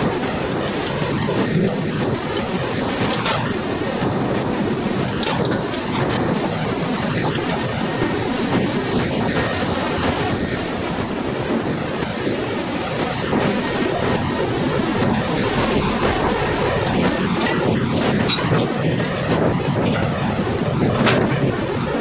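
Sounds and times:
rail wagons running: 0.0s - 22.0s
log grapple crane rumbling: 12.8s - 22.0s.

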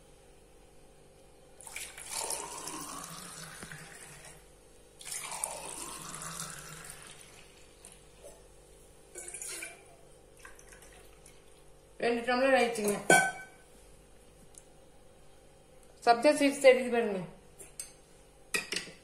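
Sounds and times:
juice pouring into glass: 1.6s - 4.4s, 5.0s - 8.4s, 9.1s - 11.7s.

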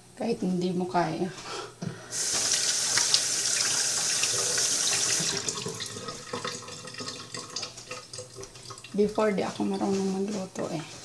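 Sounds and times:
tap water running into sink: 1.8s - 10.3s.

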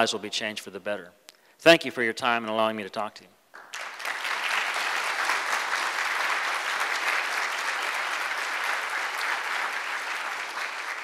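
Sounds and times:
audience applause: 3.6s - 11.0s.

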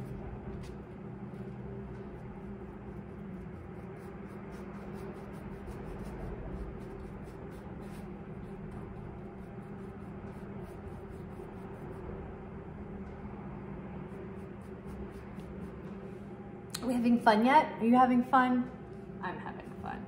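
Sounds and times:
paintbrush scrubbing on canvas: 0.0s - 12.1s, 14.1s - 16.2s
low hum: 0.0s - 20.0s.

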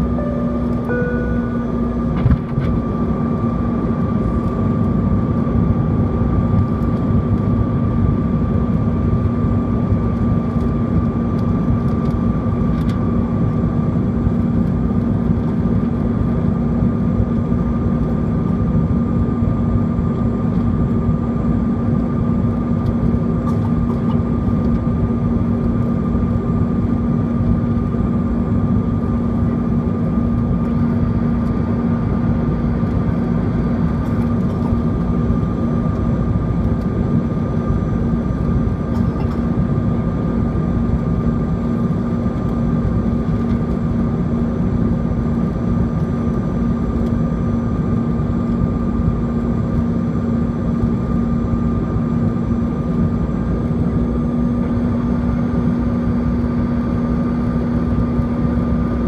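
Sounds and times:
two-note tone: 0.0s - 2.1s
jet engines droning: 0.0s - 59.0s
rushing airflow in cabin: 0.0s - 59.0s
steady hum: 0.0s - 59.0s.

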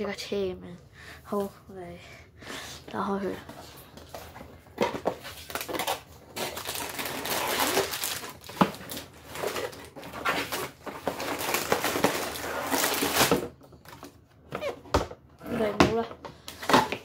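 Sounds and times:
plastic bags crinkling: 4.1s - 14.2s.

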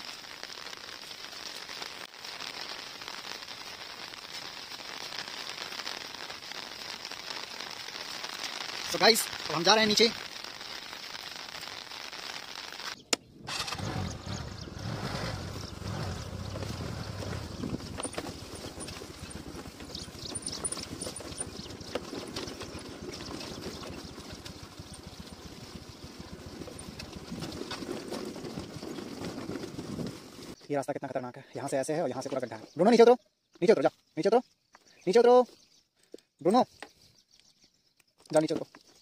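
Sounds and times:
scooter engine running: 13.5s - 21.7s.

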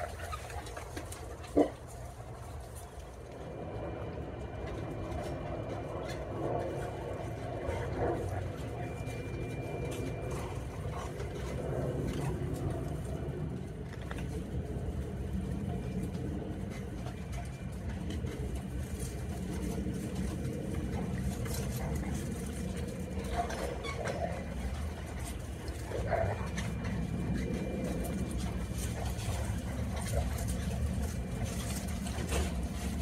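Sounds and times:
low rumble: 0.0s - 33.0s.

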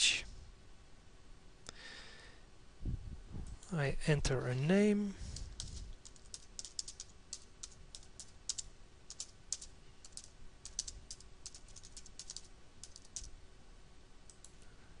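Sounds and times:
typing on computer keyboard: 5.4s - 13.3s.

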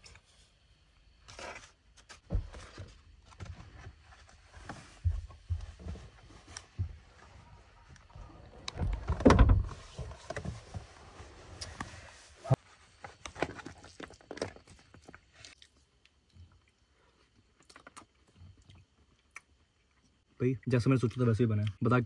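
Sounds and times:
rustle and thump on bedding: 2.2s - 7.4s.

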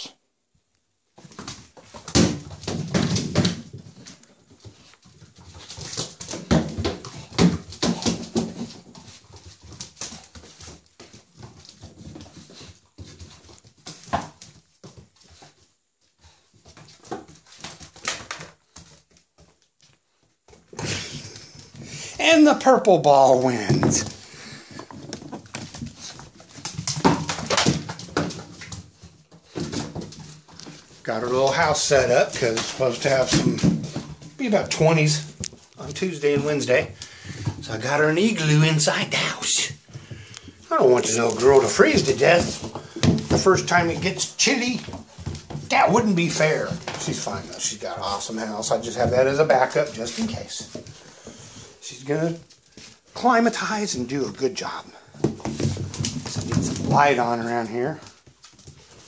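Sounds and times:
paws and ball knocking on tiles: 1.2s - 15.6s, 23.6s - 31.6s, 39.8s - 47.5s, 55.0s - 57.2s.

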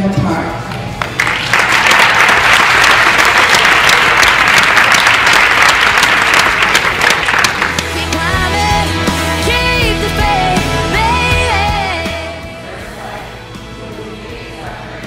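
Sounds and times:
audience applauding: 1.0s - 8.4s.

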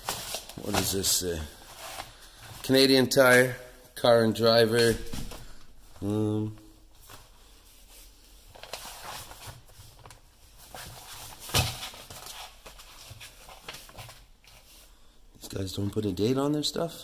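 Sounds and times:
magazine pages rustling: 0.0s - 2.7s, 7.0s - 14.9s.

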